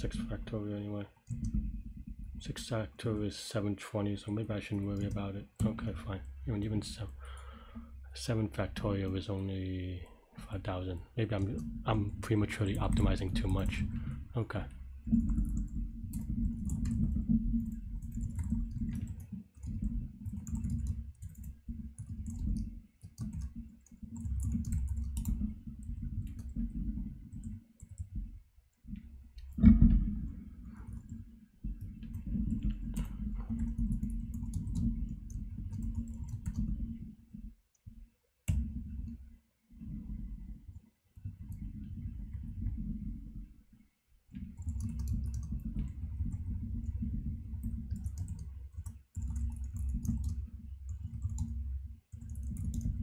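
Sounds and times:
computer keyboard typing: 4.3s - 5.9s, 11.4s - 14.2s, 15.1s - 28.2s, 30.7s - 36.8s, 44.4s - 53.0s.

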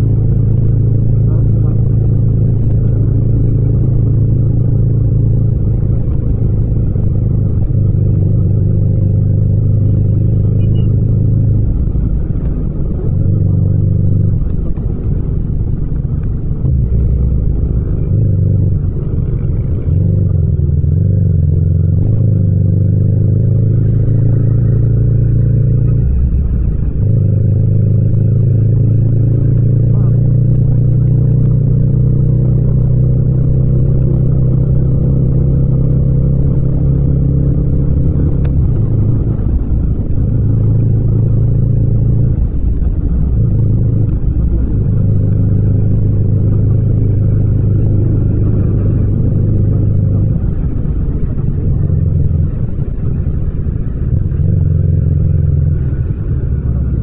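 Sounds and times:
motorcycle engine droning: 0.0s - 57.0s.

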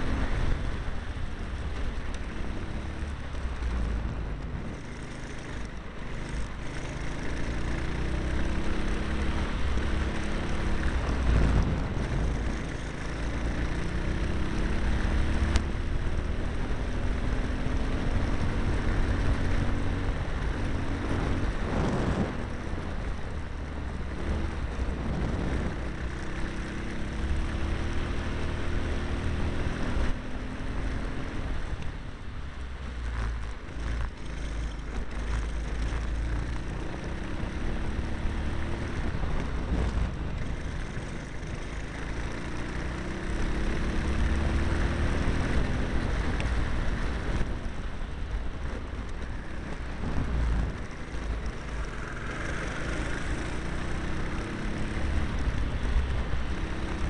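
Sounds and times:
wind rumble on microphone: 0.0s - 57.0s
kart engine revving: 49.4s - 55.6s.

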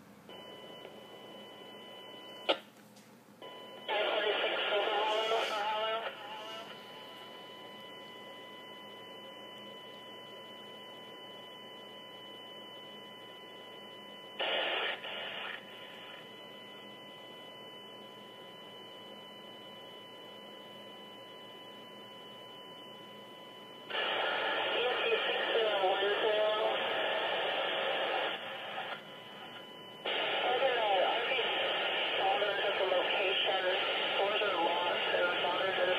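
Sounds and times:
radio voices: 3.9s - 6.8s, 23.9s - 35.9s
radio noise burst: 3.9s - 6.9s, 14.4s - 16.2s, 23.9s - 35.9s
scanner static hiss: 14.4s - 16.3s, 23.9s - 35.9s.

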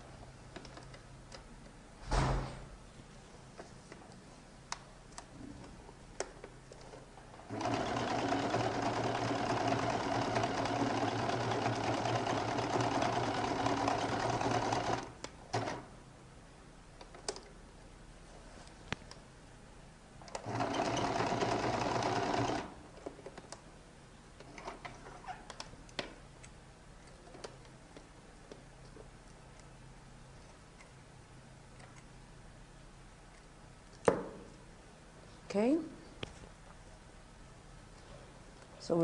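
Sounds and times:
sewing machine stitching: 7.5s - 15.9s, 20.3s - 22.8s.

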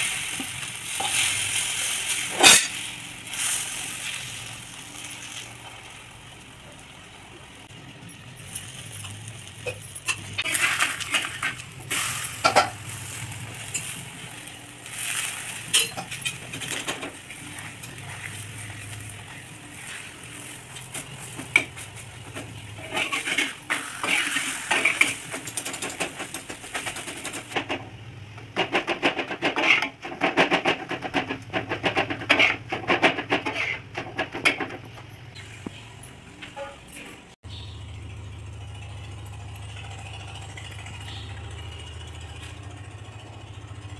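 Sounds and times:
spatula scraping iron griddle: 0.0s - 4.5s, 8.6s - 27.7s, 28.6s - 34.8s
oil sizzling: 0.0s - 28.0s.

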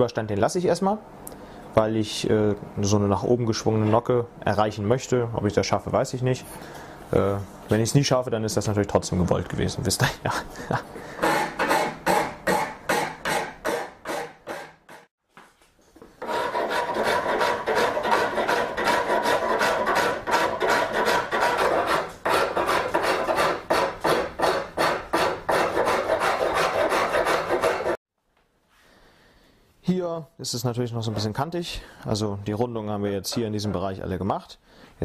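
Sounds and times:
rasp scraping wood: 11.1s - 15.1s, 16.2s - 28.0s.

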